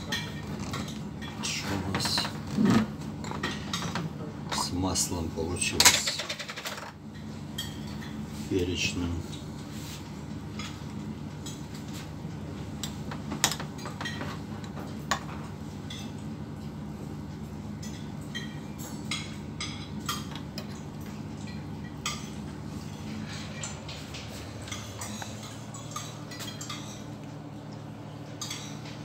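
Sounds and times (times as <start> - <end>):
cutlery clinking on dishes: 23.2 - 27.1, 28.3 - 29.0.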